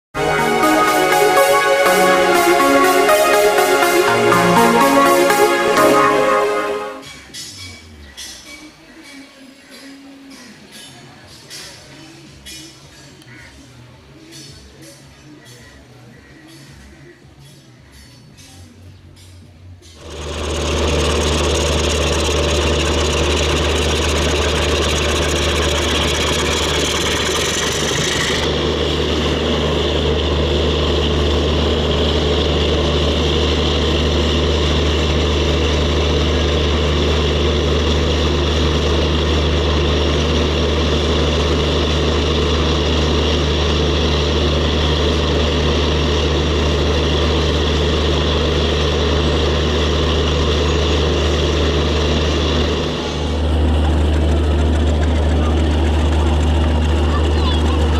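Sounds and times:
diesel locomotive idling: 0:20.0 - 0:57.9.

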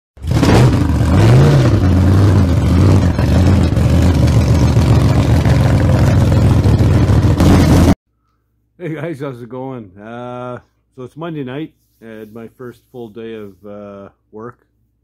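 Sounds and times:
loud engine revving: 0:00.2 - 0:08.0.

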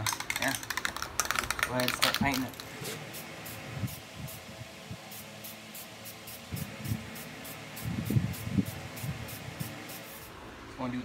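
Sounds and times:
spray paint can hissing: 0:00.0 - 0:04.5, 0:05.1 - 0:10.3.

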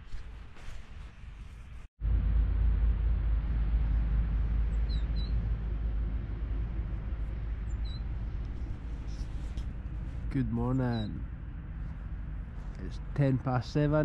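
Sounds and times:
low outdoor rumble: 0:00.0 - 0:14.0
high bird chirps: 0:04.7 - 0:05.4, 0:07.6 - 0:08.2.

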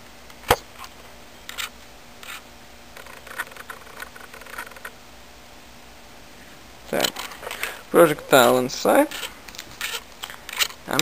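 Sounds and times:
plastic and rod scraping: 0:09.1 - 0:10.8.

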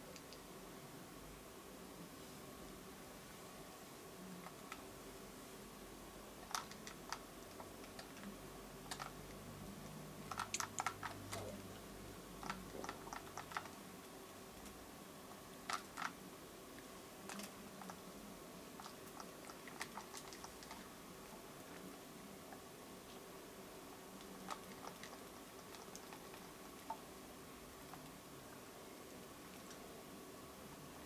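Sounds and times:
low room hum: 0:00.0 - 0:31.0
small clicks and ticks: 0:00.1 - 0:00.5, 0:06.4 - 0:14.8, 0:15.6 - 0:16.2, 0:16.8 - 0:18.0, 0:18.8 - 0:21.9, 0:24.2 - 0:27.1.

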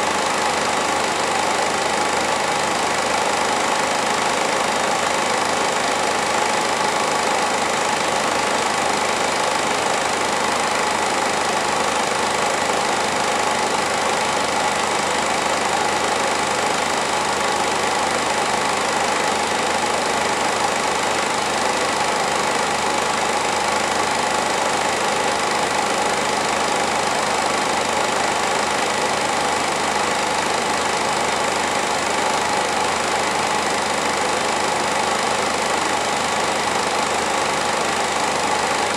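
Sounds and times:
film projector whirring: 0:00.0 - 0:38.9.

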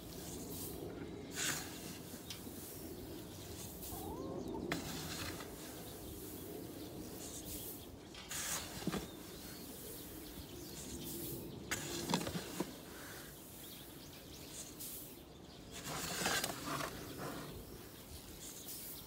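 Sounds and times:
bird chirp: 0:00.0 - 0:19.0.

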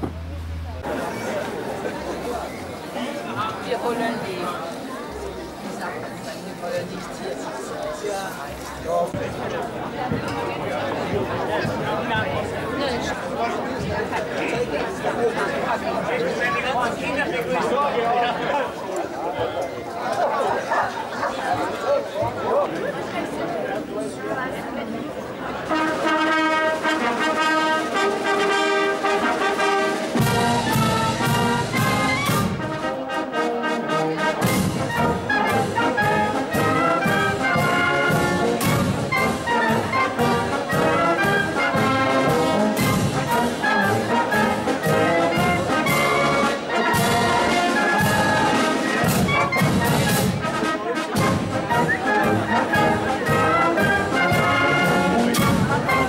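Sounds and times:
brass band playing: 0:25.4 - 0:56.0.

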